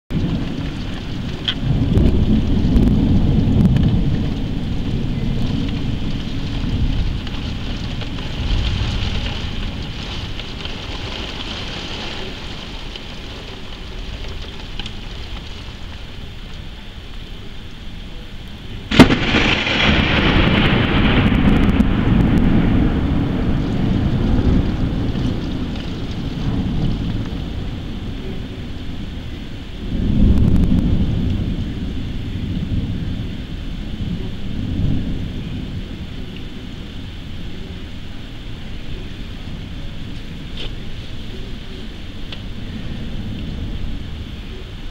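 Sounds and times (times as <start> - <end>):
sharp thunderclap: 0.1 - 16.4, 18.9 - 37.0
heavy rain: 0.1 - 44.9
thunder rumbling: 0.1 - 44.9.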